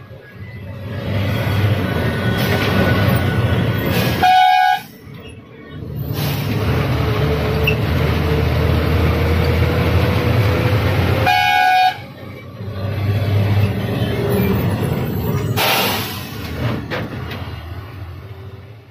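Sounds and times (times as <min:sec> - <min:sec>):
engine rumble and road noise: 0:00.0 - 0:18.9
horn blast: 0:03.9 - 0:05.0, 0:11.2 - 0:12.1.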